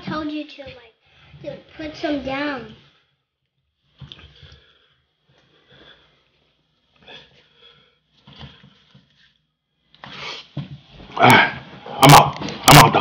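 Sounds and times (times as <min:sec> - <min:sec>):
person sniffing: 0:10.0 - 0:10.6.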